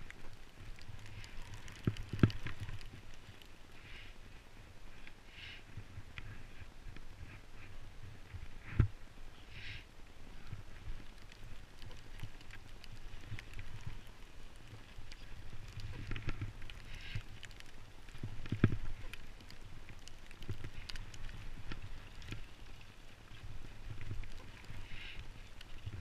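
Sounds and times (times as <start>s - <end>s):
small clicks: 0.0s - 4.0s, 10.4s - 26.0s.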